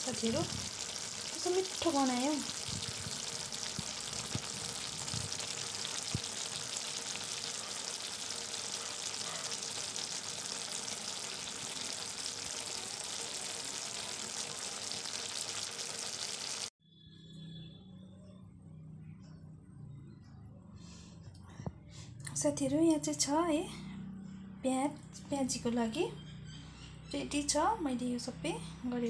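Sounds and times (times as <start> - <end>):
greens sizzling in a wok: 0.0 - 16.7.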